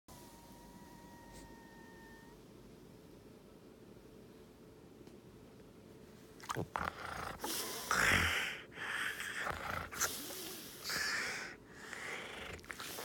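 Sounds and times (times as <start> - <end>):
dog breathing noisily: 6.7 - 13.0.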